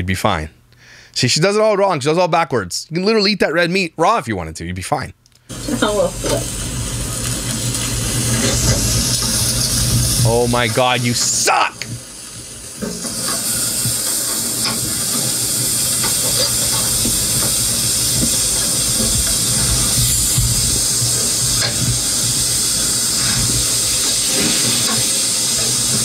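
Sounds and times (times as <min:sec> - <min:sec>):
steaks sizzling on a grill: 0:05.5 - 0:26.0.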